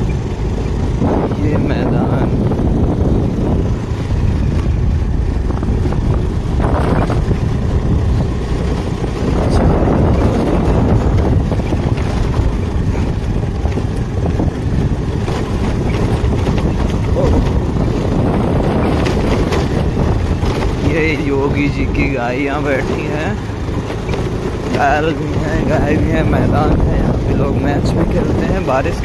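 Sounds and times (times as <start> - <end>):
motorcycle engine running: 0.0 - 29.0
wind buffeting microphone: 0.0 - 29.0.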